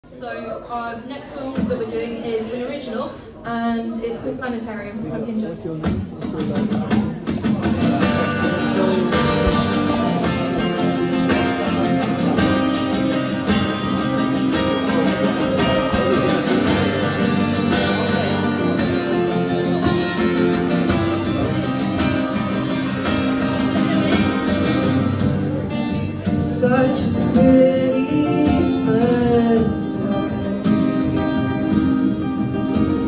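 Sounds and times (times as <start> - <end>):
acoustic guitar strumming chords: 5.8 - 33.0.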